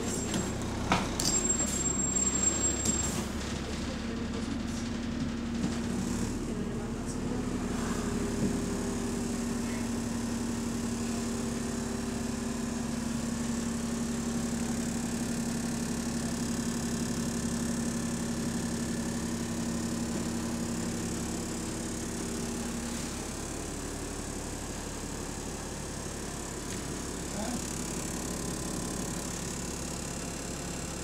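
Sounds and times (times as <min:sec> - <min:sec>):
bus engine droning: 0:00.0 - 0:31.0.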